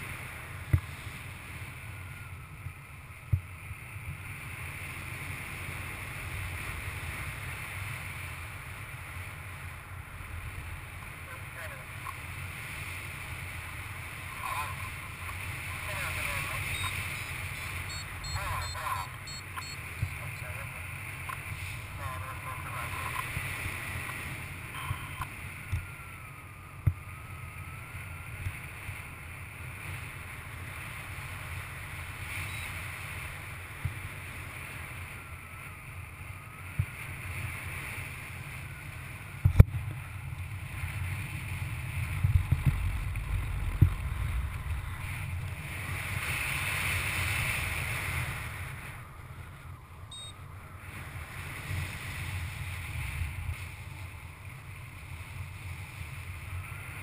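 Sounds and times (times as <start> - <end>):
wind buffeting microphone: 33.2 - 57.0.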